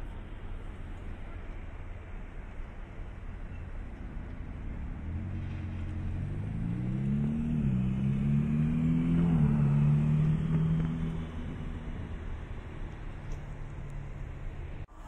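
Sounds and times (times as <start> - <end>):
race car engine passing: 4.4 - 14.9.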